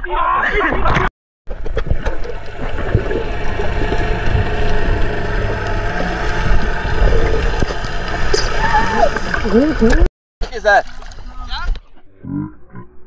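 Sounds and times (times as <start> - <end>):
underwater rumble and hiss: 1.5 - 10.1.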